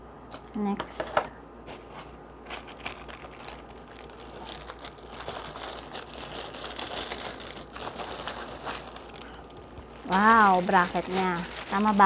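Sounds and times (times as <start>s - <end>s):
plastic bag crinkling: 1.7s - 12.0s.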